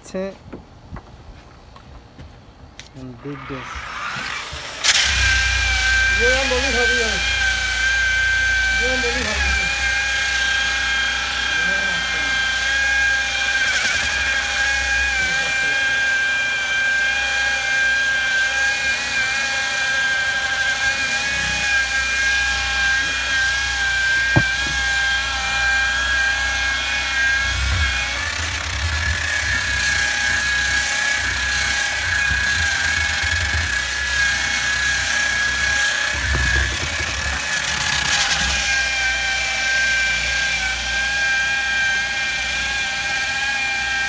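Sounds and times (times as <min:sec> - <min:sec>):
disc sander whining: 0:03.8 - 0:44.0.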